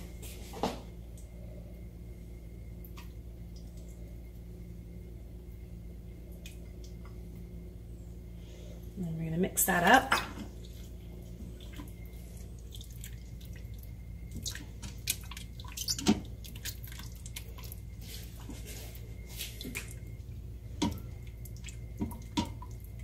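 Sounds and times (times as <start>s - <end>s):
steady low hum: 0.0s - 23.0s
wet squelching of stirring: 9.7s - 23.0s.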